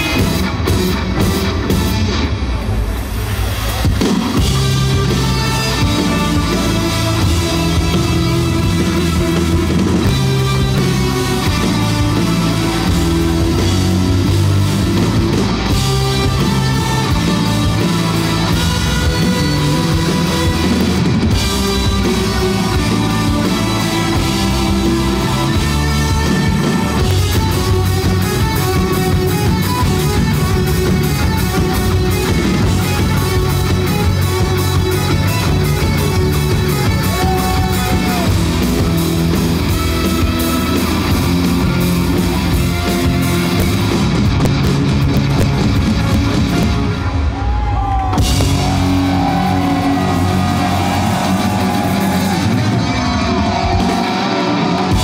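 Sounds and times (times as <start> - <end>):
rock band playing: 0.0 - 55.0
fast sharp drum hits: 48.0 - 54.3.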